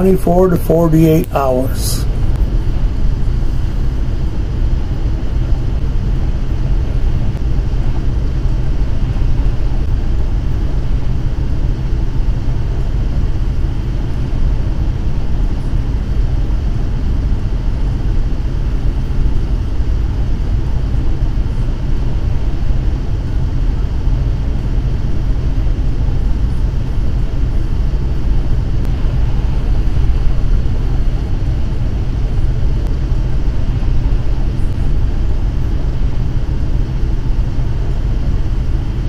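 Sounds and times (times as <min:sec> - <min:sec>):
vehicle driving low rumble: 0:28.3 - 0:35.7.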